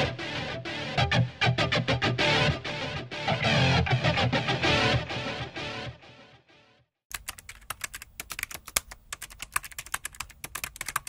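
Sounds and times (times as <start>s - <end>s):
guitar music: 0.0s - 6.6s
keyboard key clicks: 7.1s - 11.0s.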